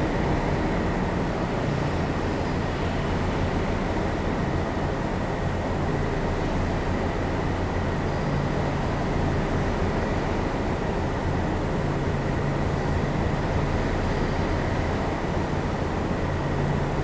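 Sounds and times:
low machine rumble and hum: 0.0s - 17.0s.

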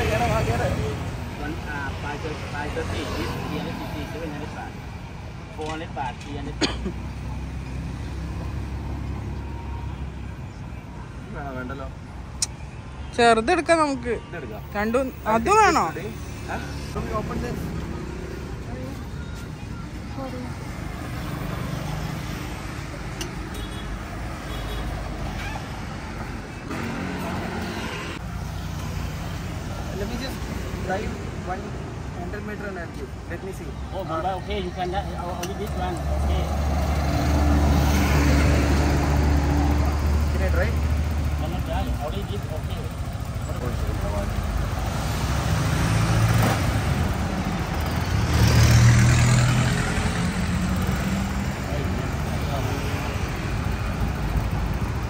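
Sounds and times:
scooters and cars passing: 0.0s - 12.0s, 14.1s - 55.0s
vehicle engine passing by: 36.0s - 41.4s, 43.5s - 53.6s.

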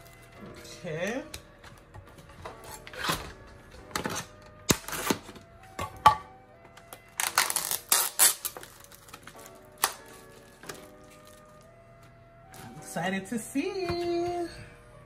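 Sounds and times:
soft background music: 0.0s - 15.0s
plastic packaging crinkling: 7.2s - 11.7s.

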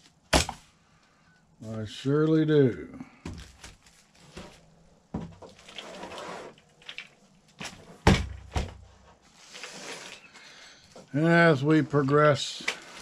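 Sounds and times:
plastic pack crinkling: 3.3s - 4.8s.

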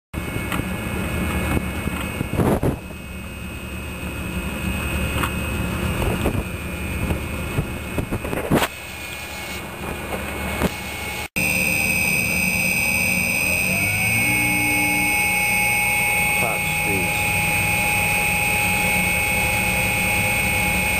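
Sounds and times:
machine hum with high whine: 0.2s - 20.9s.

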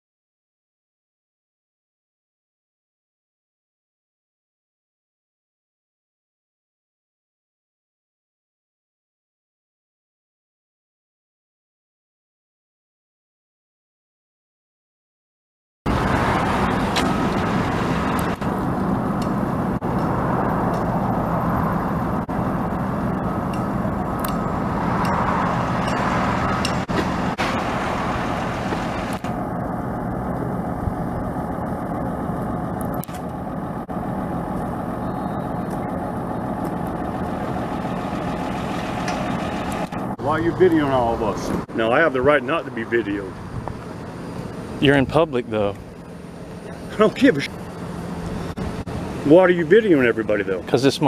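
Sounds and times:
vehicle engine and traffic noise: 15.9s - 51.0s.

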